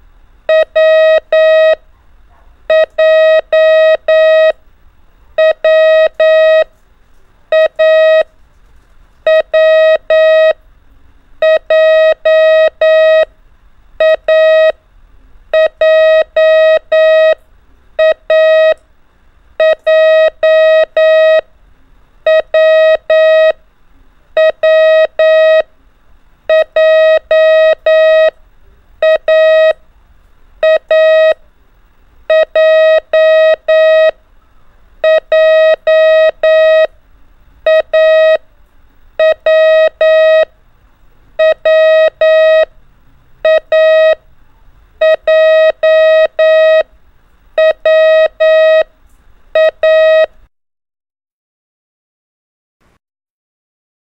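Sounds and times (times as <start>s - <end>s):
morse code beeps: 0.5s - 1.8s, 2.7s - 4.6s, 5.4s - 6.7s, 7.5s - 8.3s, 9.3s - 10.6s, 11.4s - 13.3s, 14.0s - 14.8s, 15.5s - 17.4s, 18.0s - 18.8s, 19.6s - 21.4s, 22.2s - 23.6s, 24.4s - 25.7s, 26.5s - 28.4s, 29.0s - 29.8s, 30.6s - 31.4s, 32.3s - 34.2s, 35.0s - 36.9s, 37.6s - 38.4s, 39.2s - 40.5s, 41.4s - 42.7s, 43.4s - 44.2s, 45.0s - 46.9s, 47.6s - 48.9s, 49.6s - 50.3s.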